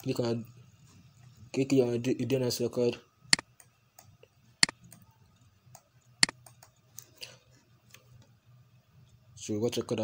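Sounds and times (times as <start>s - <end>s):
computer mouse clicks: 5.7s - 7.1s.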